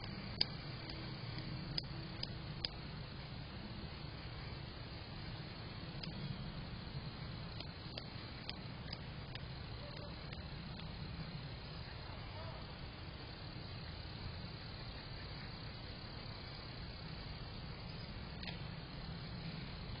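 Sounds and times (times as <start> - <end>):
faint clicks: 0.0 - 2.8, 6.0 - 6.3, 7.5 - 11.0, 17.8 - 18.7
constant high-pitched tone: 0.0 - 20.0
outdoor hiss and low rumble: 0.0 - 20.0.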